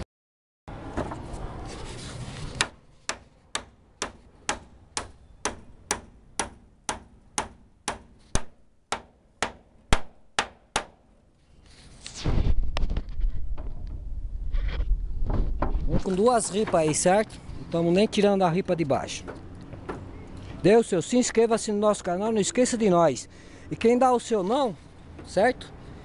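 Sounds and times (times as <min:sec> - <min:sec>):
hammer nailing into wood: 0:02.6 - 0:11.0.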